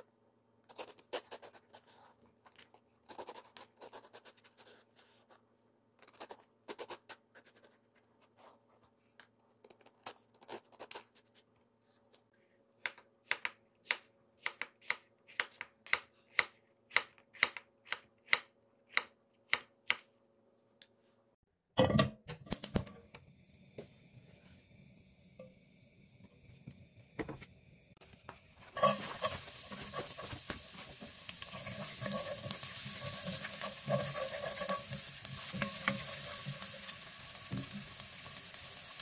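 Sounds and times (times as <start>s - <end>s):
faint steady hum: 22.8s - 29.9s.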